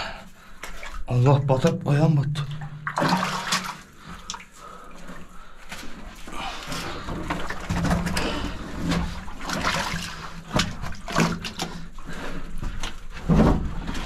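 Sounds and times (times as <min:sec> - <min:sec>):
shallow water splashing: 0:02.3 - 0:12.8.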